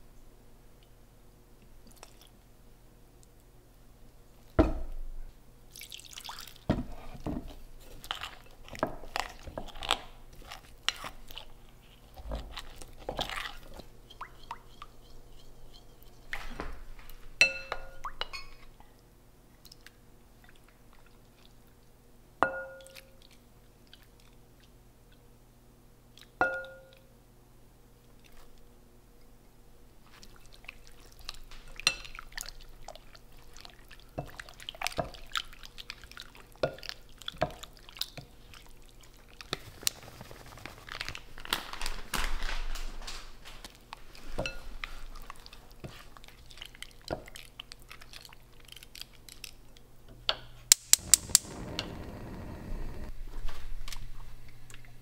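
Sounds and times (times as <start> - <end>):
stirring starch in glass bowl: 7.8 - 16.6
glass bowl clinking and ringing: 17.4 - 18.6, 22.4 - 23.0, 26.4 - 26.9.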